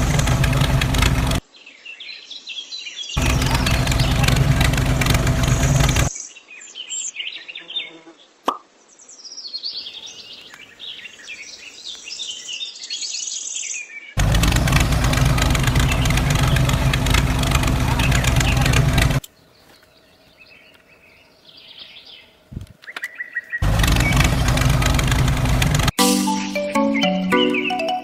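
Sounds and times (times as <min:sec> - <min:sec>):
loud engine running: 0:00.0 - 0:01.4, 0:03.2 - 0:06.1, 0:14.2 - 0:19.2, 0:23.6 - 0:26.0
birds chirping: 0:00.0 - 0:28.0.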